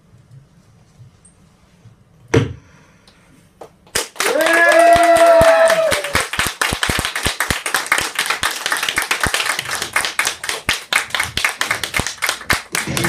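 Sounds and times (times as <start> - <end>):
audience applause: 4.0 - 13.0.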